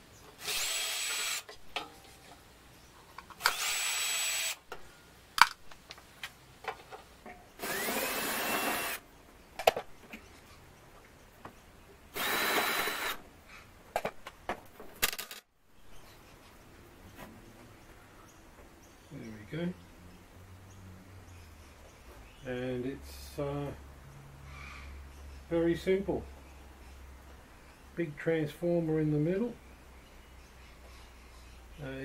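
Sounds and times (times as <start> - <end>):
cordless drill backing out screws: 3.4 - 4.6.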